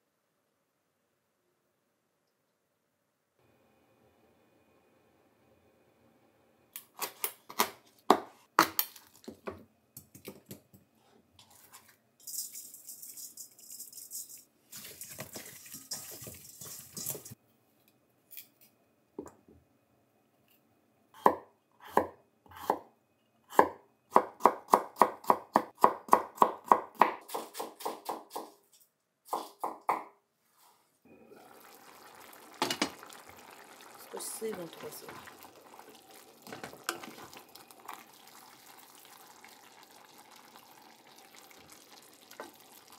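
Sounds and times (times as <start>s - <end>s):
pot simmering: 14.7s - 17.4s, 31.0s - 42.9s
running tap water: 14.8s - 17.4s, 31.3s - 42.9s.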